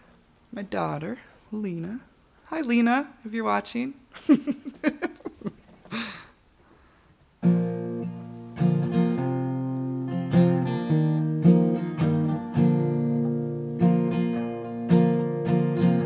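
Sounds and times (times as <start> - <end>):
acoustic guitar strumming chords: 7.4 - 16.0.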